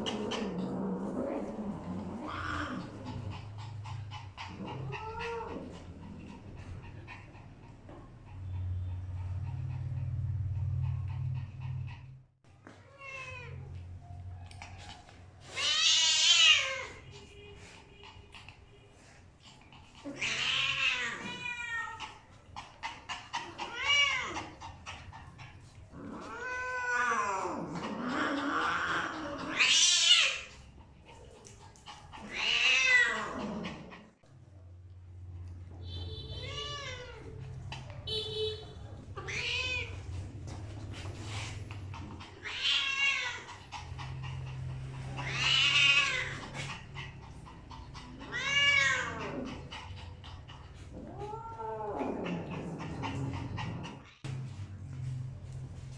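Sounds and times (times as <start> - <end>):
cat yowling in distress: 15.5 - 17.0, 20.1 - 22.2, 23.6 - 24.6, 32.2 - 33.4, 36.3 - 37.4, 42.3 - 43.6, 45.1 - 46.6, 48.1 - 49.6, 51.0 - 52.4.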